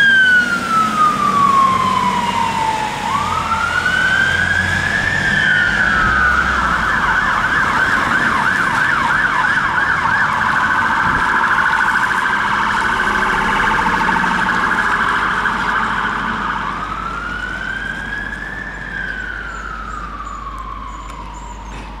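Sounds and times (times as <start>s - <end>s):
fire engine siren: 0.0s - 22.0s.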